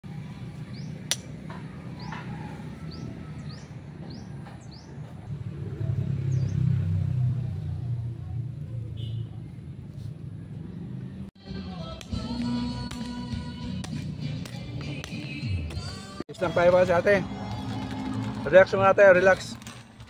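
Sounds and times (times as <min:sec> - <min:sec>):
vehicle engine rumbling: 0:00.0 - 0:12.8, 0:16.3 - 0:20.0
sharp click: 0:01.1 - 0:01.3.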